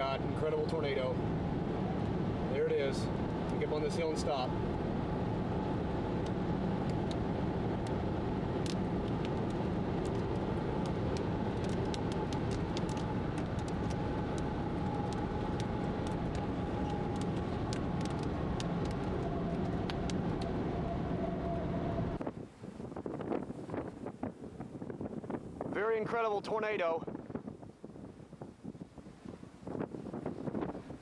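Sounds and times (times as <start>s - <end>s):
car engine hum: 0.0s - 22.2s
road noise: 0.0s - 25.7s
raindrops ticking on windshield: 5.9s - 20.8s.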